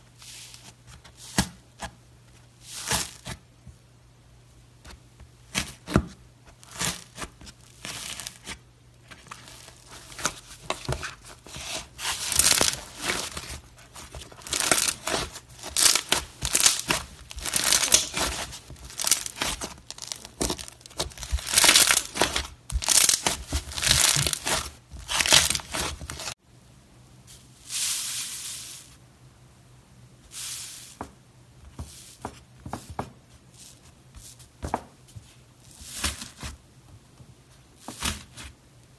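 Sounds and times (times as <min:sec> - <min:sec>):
slime crackling and crunching: 0:06.6 - 0:08.5, 0:11.6 - 0:26.4.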